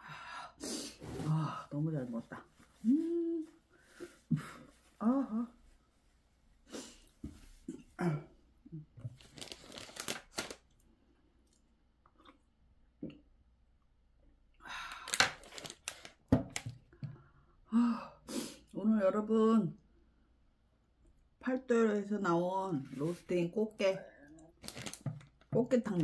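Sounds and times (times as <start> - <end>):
plastic packet crinkling: 9.1 - 10.8, 14.9 - 16.7, 24.6 - 26.0
paper tissue rustling: 9.2 - 10.6, 15.4 - 16.2, 24.6 - 25.1.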